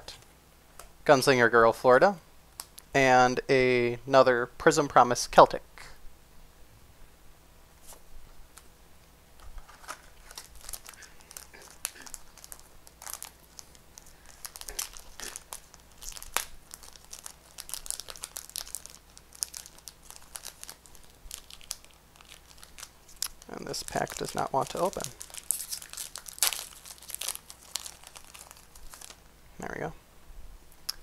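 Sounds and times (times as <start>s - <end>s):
wrapper crinkling and tearing: 9.4s - 29.3s.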